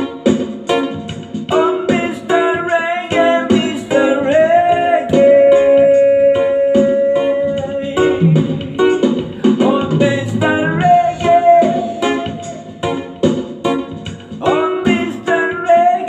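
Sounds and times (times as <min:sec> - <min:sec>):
man singing: 0:01.5 - 0:08.8, 0:09.4 - 0:12.8, 0:14.4 - 0:16.0
acoustic guitar strumming: 0:08.0 - 0:12.2.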